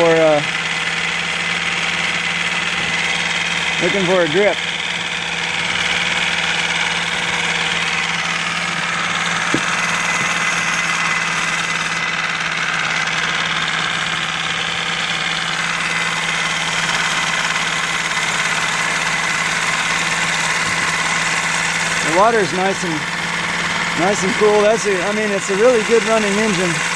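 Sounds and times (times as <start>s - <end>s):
outboard engine running: 0.0s - 26.9s.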